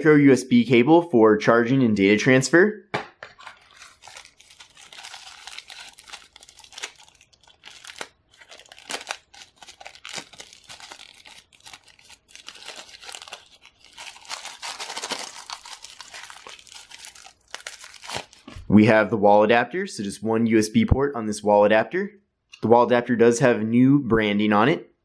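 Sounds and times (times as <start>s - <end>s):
packaging wrap crinkling and tearing: 3.4s - 18.6s.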